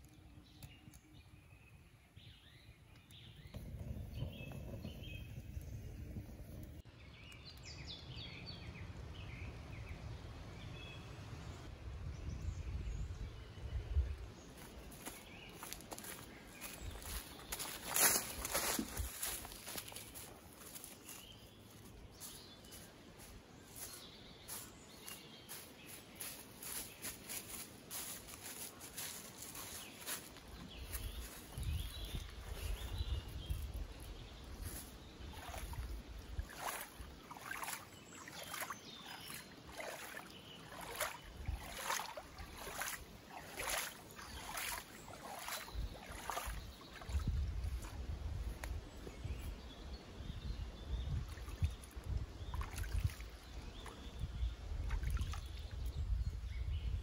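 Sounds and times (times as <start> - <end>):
footsteps on forest path: 14.4 - 49.6
hands splashing in water: 35.3 - 47.9.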